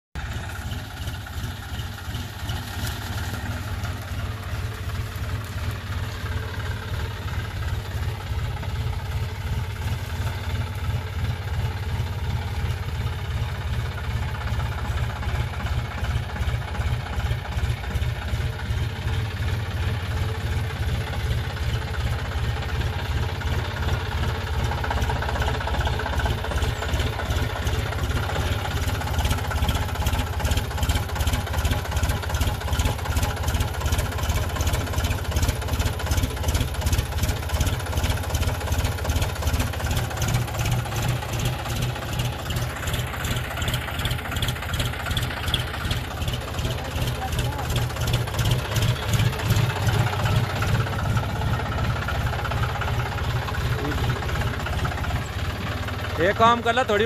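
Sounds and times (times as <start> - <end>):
tractor diesel engine running: 0.1 - 57.0.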